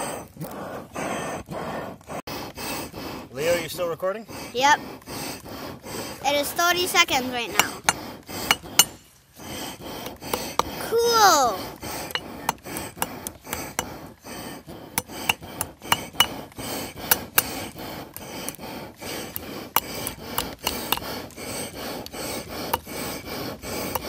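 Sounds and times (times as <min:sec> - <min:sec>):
hand air pump rubbing: 0:00.0 - 0:24.0
hammer striking hot metal: 0:07.5 - 0:09.1, 0:09.8 - 0:10.9, 0:11.9 - 0:14.0, 0:14.8 - 0:24.0.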